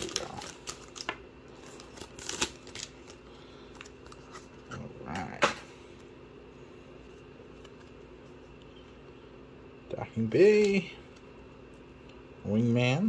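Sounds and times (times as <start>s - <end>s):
foil pack rustling: 0.0s - 4.6s.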